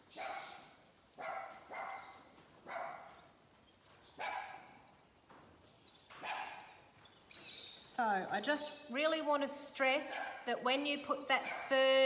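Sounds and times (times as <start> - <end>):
dog barking: 0.1 - 3.2, 4.2 - 4.8, 6.2 - 6.8, 10.0 - 10.5, 11.4 - 11.8.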